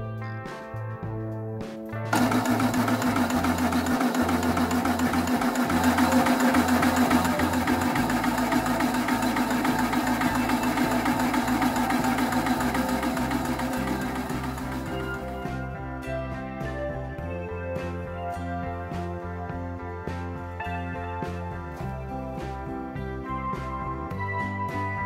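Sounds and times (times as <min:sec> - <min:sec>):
air compressor pistons pumping: 0:02.1 - 0:15.4.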